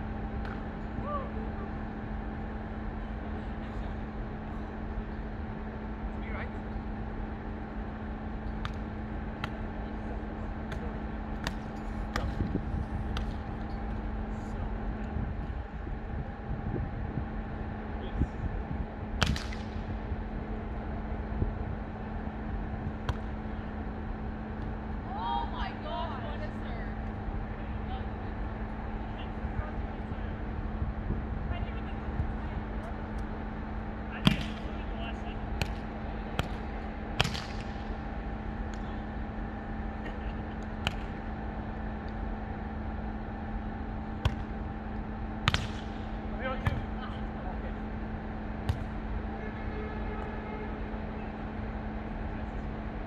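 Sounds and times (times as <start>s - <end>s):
steady low hum: 0.0s - 53.0s
volleyball hand slap: 8.6s - 8.8s, 10.7s - 12.5s, 13.1s - 13.4s, 19.2s - 19.8s, 23.0s - 23.3s, 34.2s - 34.7s, 35.6s - 36.6s, 37.2s - 37.8s, 40.8s - 41.2s, 44.2s - 44.6s, 45.4s - 46.0s.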